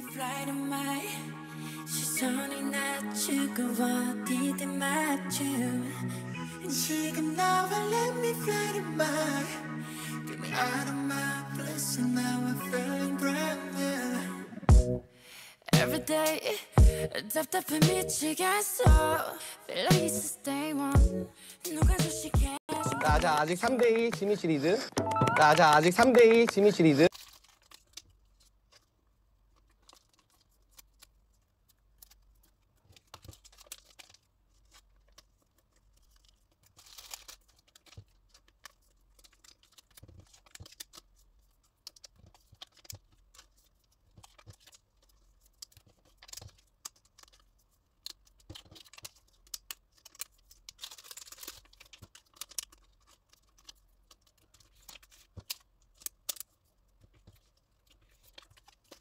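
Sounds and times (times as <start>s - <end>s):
plastic sleeves crinkling: 23.0s - 59.0s.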